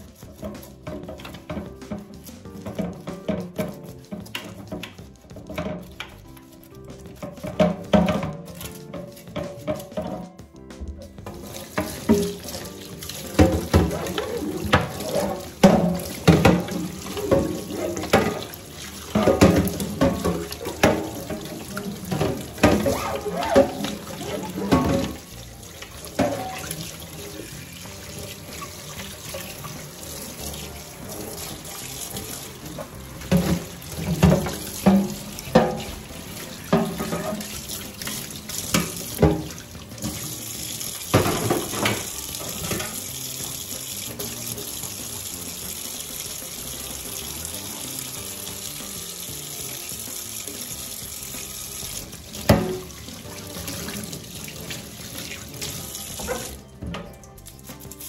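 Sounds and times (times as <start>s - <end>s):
brush scrubbing plastic tray: 0.0s - 43.0s
tap water running into sink: 0.0s - 58.0s
plastic knocking against sink: 0.2s - 6.3s, 6.9s - 27.2s, 30.4s - 40.3s, 41.1s - 43.0s.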